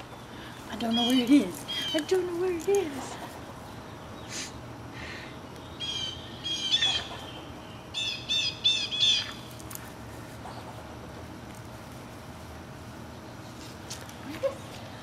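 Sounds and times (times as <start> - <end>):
squirrel alarm call chattering: 5.6 - 9.5.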